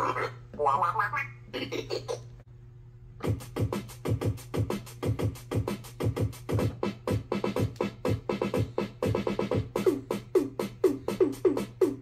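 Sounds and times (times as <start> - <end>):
toy keyboard drum beat: 3.2 - 12.0.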